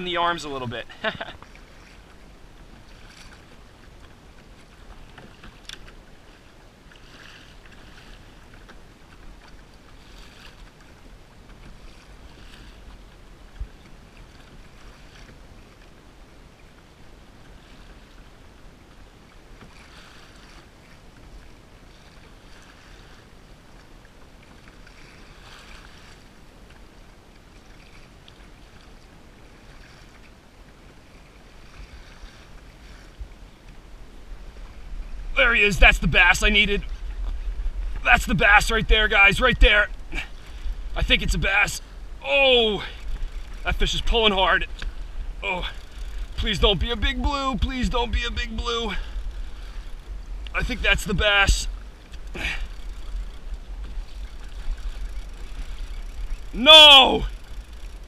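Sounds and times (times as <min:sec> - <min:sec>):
water lapping against kayak hull: 0:00.0 - 0:58.0
wind rumble on microphone: 0:31.2 - 0:42.3.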